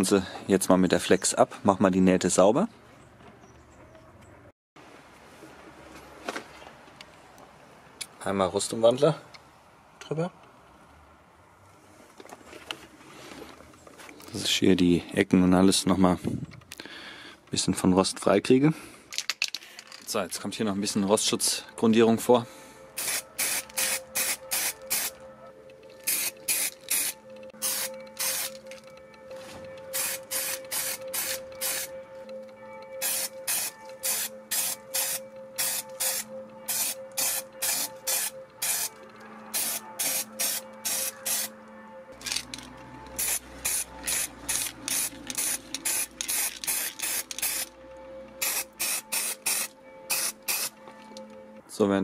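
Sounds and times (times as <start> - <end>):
spray paint hissing bursts: 23.0 - 25.2, 26.0 - 28.6, 29.9 - 31.9, 33.0 - 41.5, 43.2 - 47.7, 48.4 - 50.7.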